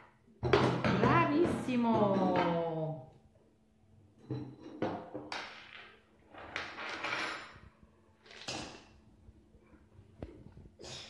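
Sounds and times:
plates and pots clattering: 4.2 - 5.6, 8.3 - 9.0.

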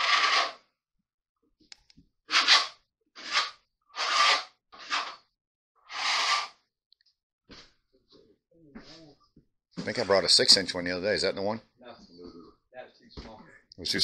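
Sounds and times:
trowel scraping adhesive: 0.0 - 0.7, 2.3 - 6.6.

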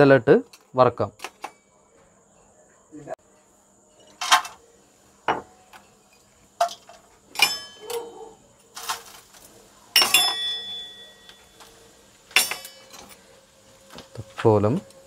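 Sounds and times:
spices clinking in metal pot: 5.3 - 8.1, 8.7 - 13.2
metal pot ringing: 7.3 - 8.0, 10.0 - 11.5, 12.3 - 13.1.

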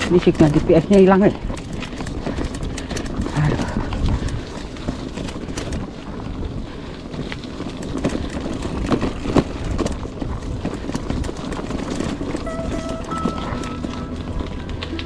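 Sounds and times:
bike rattling and clicking: 0.0 - 12.5
bike tyres crunching on stones: 0.0 - 12.5
wind rumble on microphone: 0.0 - 12.5.

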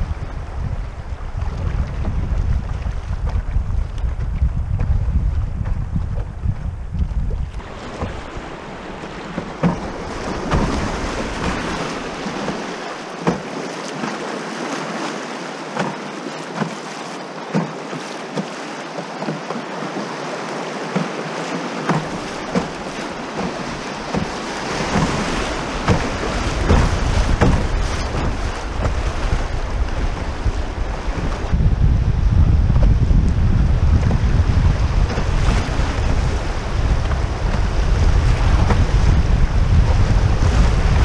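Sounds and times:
wind buffeting microphone: 0.0 - 13.5, 20.9 - 41.0
water splashing against hull: 0.0 - 41.0
river water rushing: 7.6 - 31.6.

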